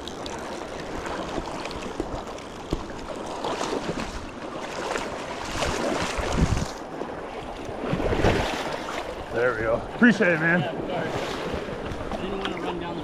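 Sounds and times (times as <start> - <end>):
splashes and knocks: 0.0 - 9.2
wind on microphone: 5.5 - 6.8.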